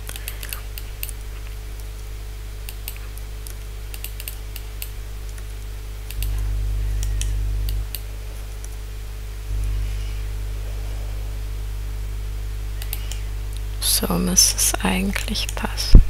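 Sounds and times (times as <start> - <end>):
low hum: 0.0 - 16.0
computer mouse clicks: 2.6 - 6.4, 12.8 - 13.2.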